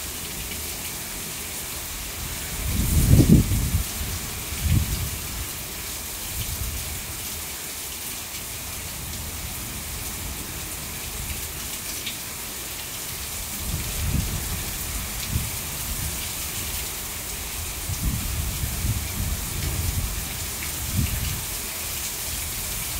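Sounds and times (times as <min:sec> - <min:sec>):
heavy rain pouring: 0:00.0 - 0:22.9.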